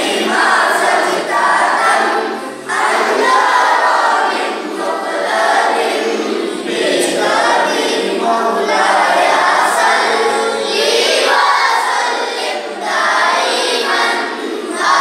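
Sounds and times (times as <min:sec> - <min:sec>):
boys chanting in chorus: 0:00.0 - 0:15.0.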